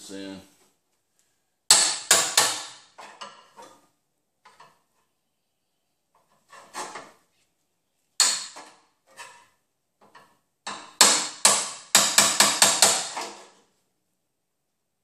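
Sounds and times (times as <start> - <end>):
hammer striking metal chisel: 1.7 - 3.4, 8.2 - 8.7, 10.6 - 13.4.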